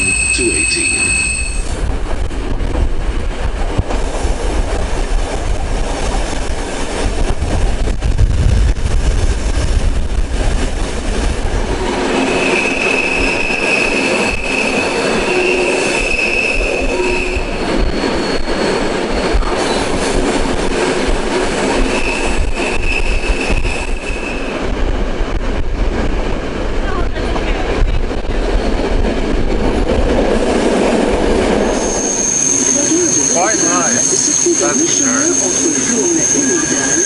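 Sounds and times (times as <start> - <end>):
high wheel squeal: 0.0 - 1.7, 12.2 - 19.9, 31.7 - 37.0
rail clicks: 0.0 - 37.0
train rumble: 0.0 - 37.0.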